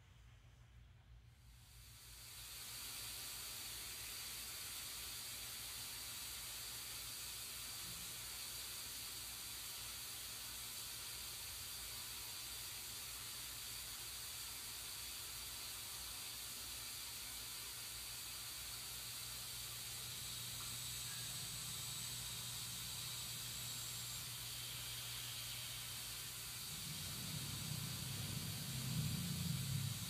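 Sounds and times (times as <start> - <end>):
steady hiss: 0.0 - 30.0
low steady hum: 18.4 - 30.0.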